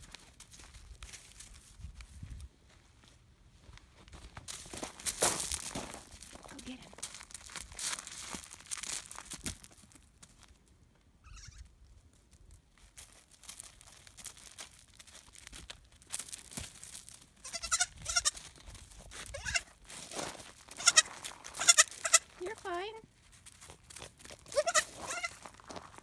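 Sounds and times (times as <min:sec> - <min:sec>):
footsteps on gravel: 0:03.6 - 0:10.6, 0:12.8 - 0:26.0
young goat bleating: 0:11.2 - 0:11.7, 0:17.4 - 0:18.4, 0:19.3 - 0:19.8, 0:20.8 - 0:22.3, 0:24.5 - 0:25.4.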